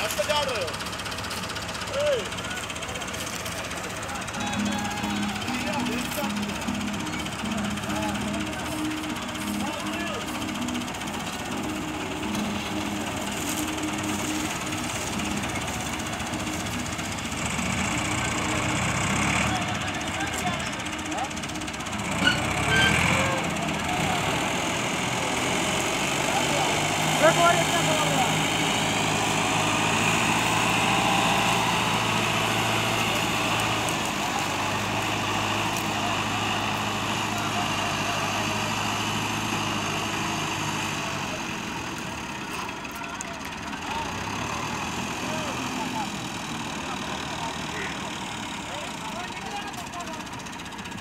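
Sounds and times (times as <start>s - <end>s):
diesel tractor engines running: 0.0s - 51.0s.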